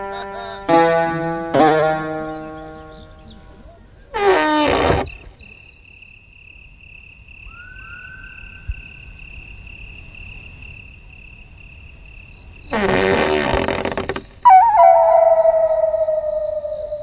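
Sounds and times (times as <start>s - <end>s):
cricket trilling: 0.0s - 17.0s
faint rising whistles: 7.4s - 9.3s, 14.5s - 17.0s
loud pitched animal call: 12.7s - 17.0s.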